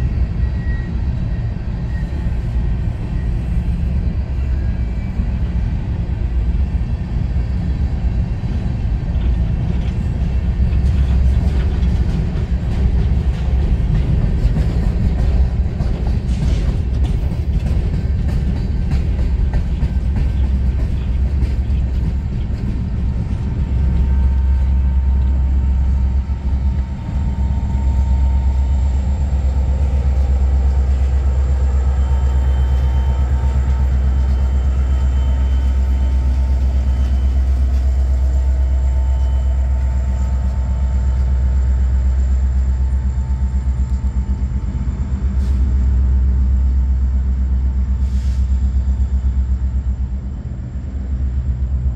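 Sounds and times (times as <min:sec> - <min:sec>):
diesel locomotive rumble: 0:00.0 - 0:51.9
faint engine whine: 0:19.8 - 0:51.9.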